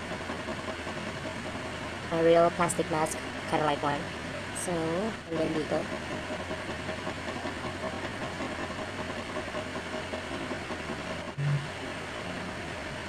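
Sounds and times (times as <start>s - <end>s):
room noise hum and hiss: 0.0s - 13.0s
brief low tone: 11.4s - 11.7s.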